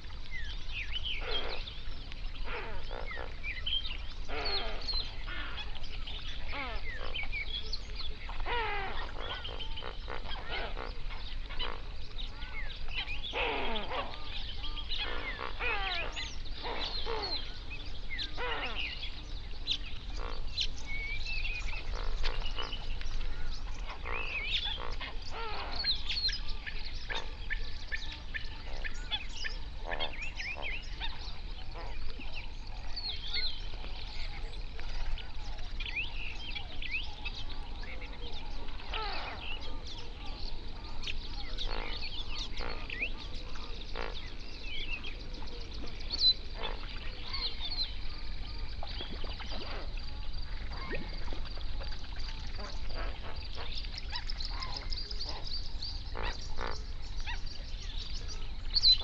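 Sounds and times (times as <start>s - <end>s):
flamingos honking: 1.2s - 57.5s.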